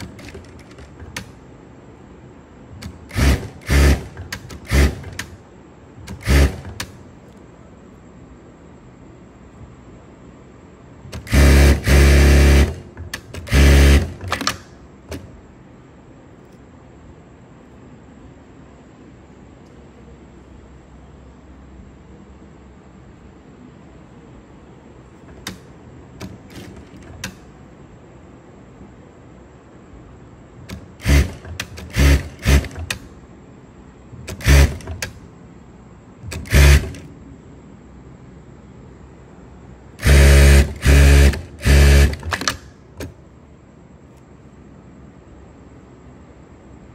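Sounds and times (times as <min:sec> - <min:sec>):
sewing machine running: 0:02.8 - 0:05.3, 0:06.1 - 0:06.9, 0:11.2 - 0:14.6, 0:30.7 - 0:33.0, 0:34.3 - 0:35.1, 0:36.3 - 0:37.0, 0:40.0 - 0:42.6.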